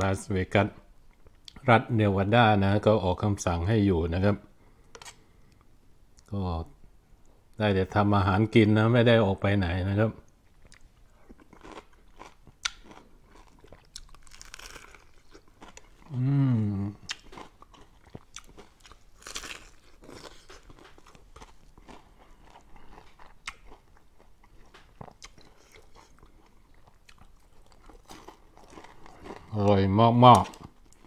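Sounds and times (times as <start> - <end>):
person chewing crunchy chicken: 10.4 - 29.8
person humming with enjoyment: 16.1 - 17.1.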